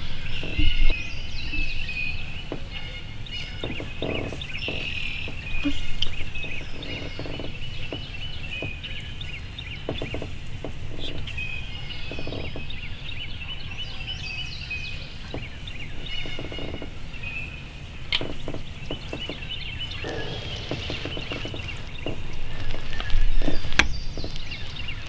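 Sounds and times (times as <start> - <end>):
songbirds chirping and singing: 0.0 - 25.0
low rumble: 18.0 - 24.8.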